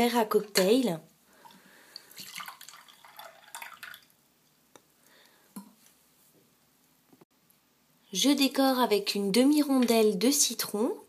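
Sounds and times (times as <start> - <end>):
drips: 1.4 - 4.2
liquid trickling into glass: 1.4 - 4.2.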